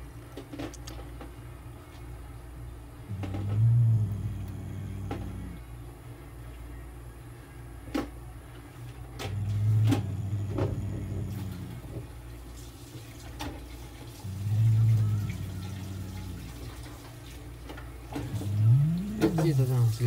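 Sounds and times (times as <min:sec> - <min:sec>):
low electrical hum: 0:00.0 - 0:20.0.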